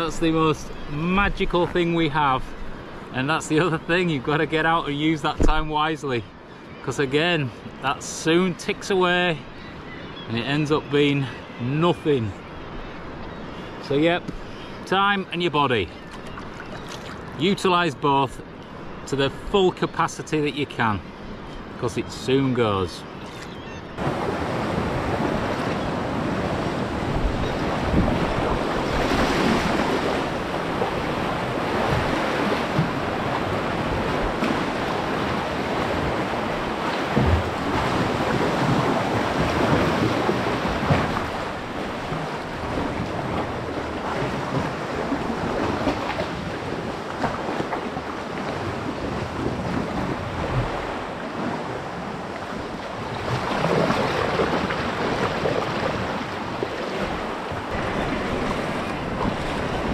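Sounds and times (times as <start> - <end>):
water splashing: 24.0 - 51.2
waves breaking against rocks: 24.0 - 59.9
wind buffeting microphone: 24.0 - 59.9.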